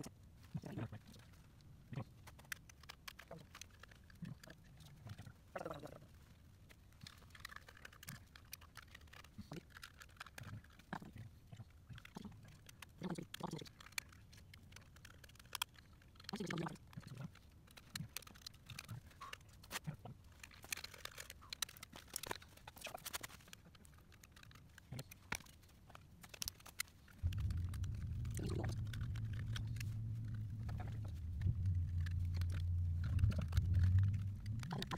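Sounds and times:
steady low hum: 0:27.2 - 0:34.9.

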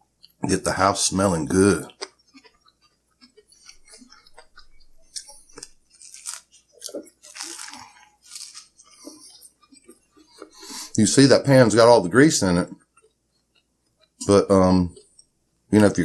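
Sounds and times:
crunchy chewing: 0:01.4 - 0:11.0, 0:12.8 - 0:14.3.

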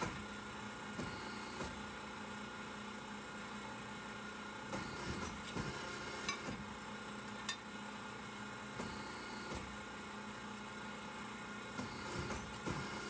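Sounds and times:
punch press humming: 0:00.0 - 0:02.8, 0:04.6 - 0:07.9, 0:08.6 - 0:10.5, 0:11.6 - 0:13.0.

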